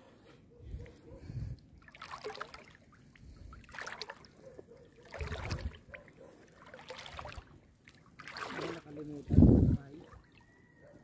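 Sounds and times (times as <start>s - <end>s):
splashing steps in shallow water: 1.8s - 2.9s, 3.6s - 4.3s, 5.0s - 5.9s, 6.5s - 9.1s.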